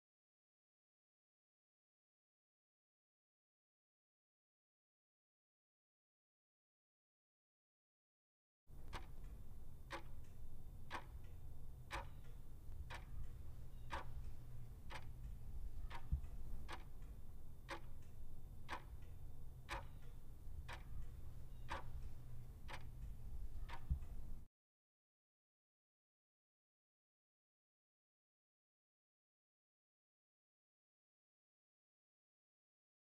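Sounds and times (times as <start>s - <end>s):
clock ticking: 8.7s - 24.5s
steady low hum: 8.7s - 24.5s.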